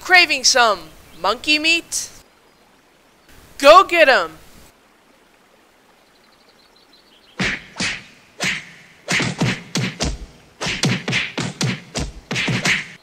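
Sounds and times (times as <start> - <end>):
punch and whack impacts: 7.4 - 13.0.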